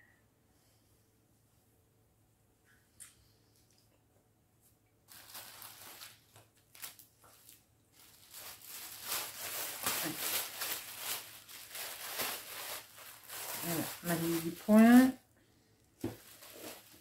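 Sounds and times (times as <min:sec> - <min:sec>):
packaging and cloth rustling: 0:05.1 - 0:15.2, 0:16.0 - 0:17.0.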